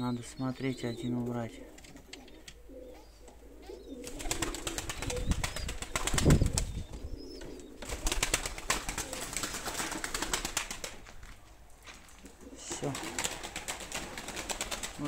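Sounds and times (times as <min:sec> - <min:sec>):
pigeons cooing: 0:00.0 - 0:10.6, 0:12.3 - 0:15.0
pigeon wings flapping: 0:04.0 - 0:06.8, 0:07.8 - 0:11.2, 0:12.8 - 0:15.0.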